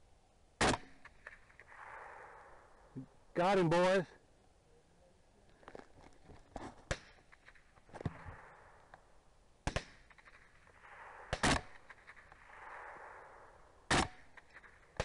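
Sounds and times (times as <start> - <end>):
rifle shots with echo: 0.6 - 2.9, 6.9 - 15.0.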